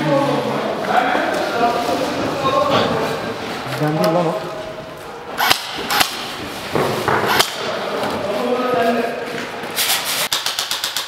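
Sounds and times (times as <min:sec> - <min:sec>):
airsoft rifle firing: 0:05.4 - 0:06.3, 0:07.2 - 0:07.7, 0:10.3 - 0:11.0
sharp knocks: 0:05.4 - 0:07.6
short scrape: 0:09.8 - 0:10.3.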